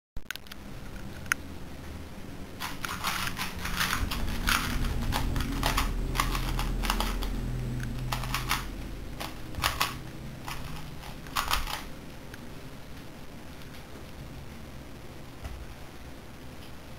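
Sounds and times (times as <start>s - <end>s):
low steady hum: 0.2s - 16.9s
puzzle cube clicking: 2.6s - 11.9s.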